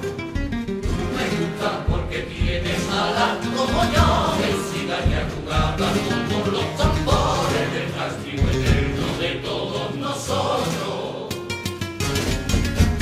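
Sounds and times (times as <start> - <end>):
acoustic guitars: 0.0 - 13.0
low drum beats: 0.1 - 9.7
men's choir singing in harmony: 0.8 - 11.5.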